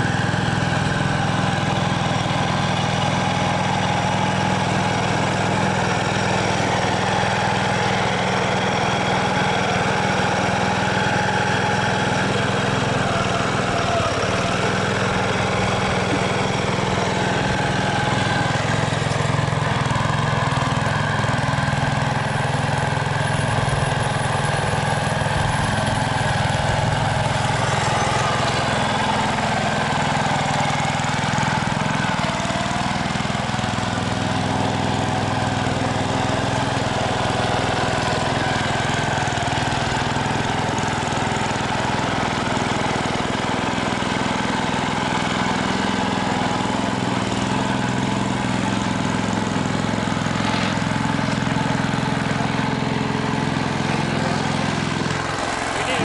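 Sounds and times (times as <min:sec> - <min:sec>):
road roller engine running: 0:00.0 - 0:56.0.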